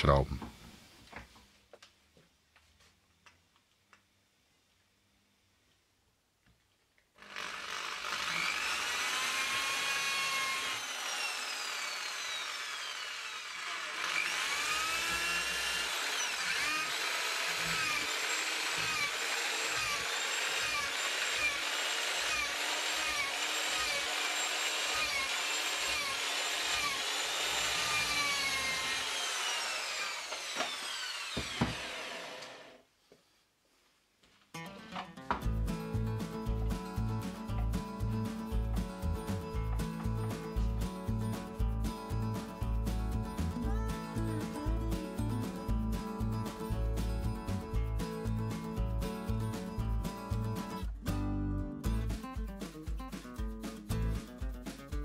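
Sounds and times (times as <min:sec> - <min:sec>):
electric drill motor whine: 0:07.2 - 0:32.8.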